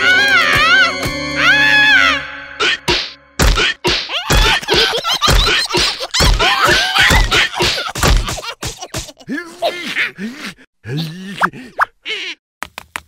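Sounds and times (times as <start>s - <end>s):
cartoon whacks and thuds: 2.7s - 9.2s
squealing wordless cries: 3.6s - 8.0s.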